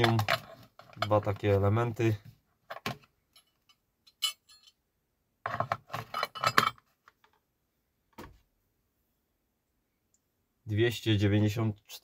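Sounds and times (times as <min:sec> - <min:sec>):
metal parts clattering in a plastic bin: 0:00.0 - 0:01.5, 0:05.5 - 0:06.9.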